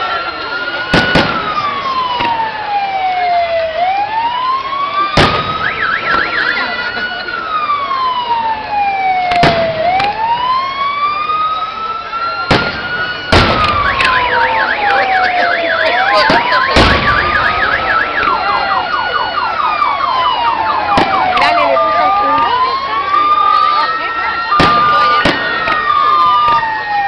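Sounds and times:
emergency sirens wailing: 0.0s - 27.0s
firework bangs: 0.8s - 2.6s, 5.1s - 6.7s, 9.3s - 10.2s, 12.4s - 15.5s, 16.1s - 18.7s, 20.8s - 21.6s, 24.5s - 26.7s.

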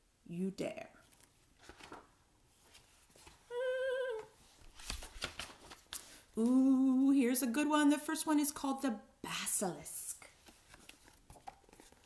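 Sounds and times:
book page turning: 1.0s - 3.5s, 4.2s - 6.6s, 10.2s - 12.0s
woman humming a note: 3.5s - 4.3s.

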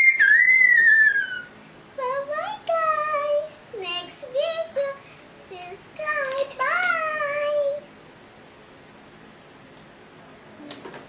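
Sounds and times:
girl squealing: 0.0s - 1.5s
girl sing-song voice: 2.0s - 7.9s.

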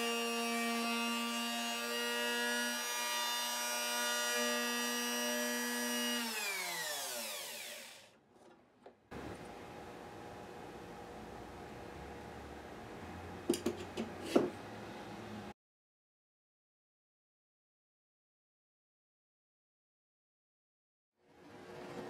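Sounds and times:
electric router whine: 0.0s - 8.1s.

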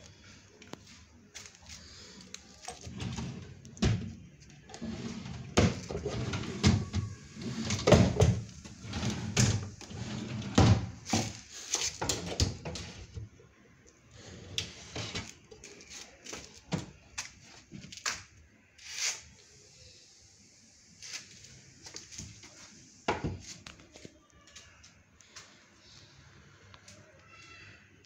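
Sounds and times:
desk drawers sliding: 4.7s - 13.2s, 14.2s - 15.4s.

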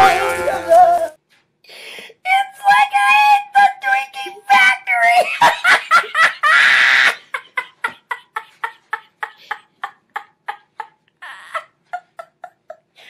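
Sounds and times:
woman laughing hard: 5.2s - 13.0s.

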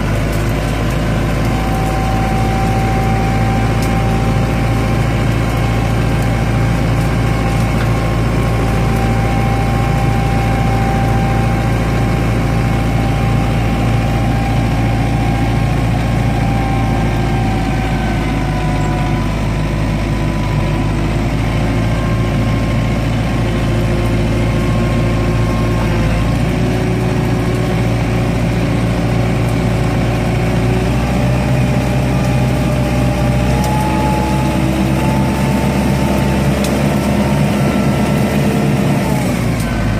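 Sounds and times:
tractor diesel engine running: 0.0s - 39.9s
thin whines shifting in pitch: 1.3s - 22.5s.

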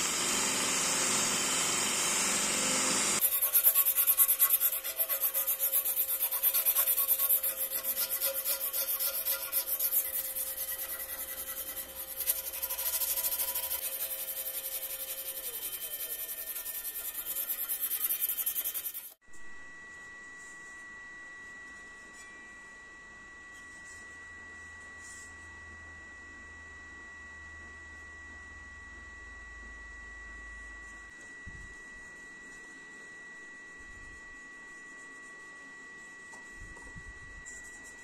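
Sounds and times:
belt sander running: 0.0s - 19.2s
hand sanding wood: 3.2s - 19.2s.

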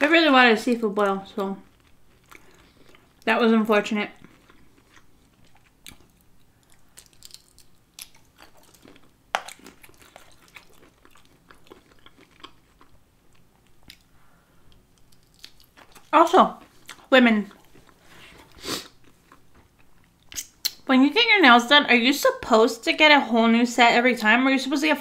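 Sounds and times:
person chewing: 1.4s - 3.3s, 4.2s - 20.8s
wet mouth clicks: 20.3s - 20.8s.

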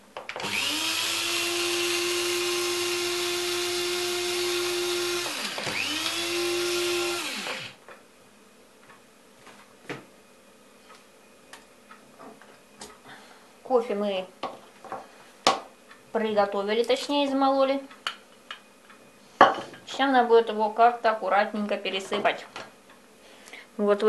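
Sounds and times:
coffee grinder whining: 0.3s - 7.8s.

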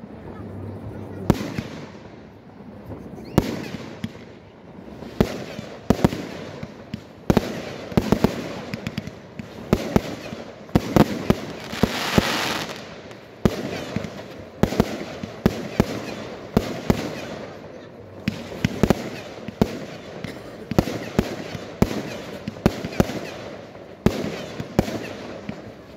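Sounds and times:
fireworks bursts and bangs: 0.0s - 25.9s
fireworks hiss: 4.8s - 17.6s.

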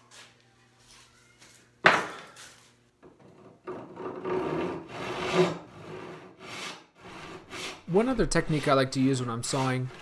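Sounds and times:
hand saw cutting wood: 3.8s - 10.0s.

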